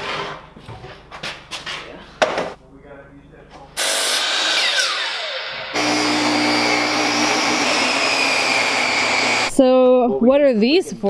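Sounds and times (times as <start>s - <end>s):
table saw ripping board: 3.8s - 9.5s
miter saw cutting: 3.8s - 9.6s.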